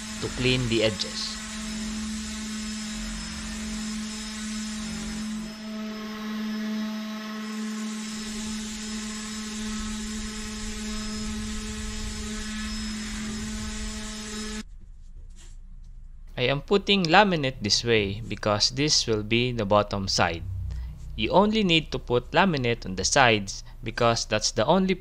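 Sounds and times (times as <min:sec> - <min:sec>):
orbital sander sanding: 0:00.0 - 0:14.7.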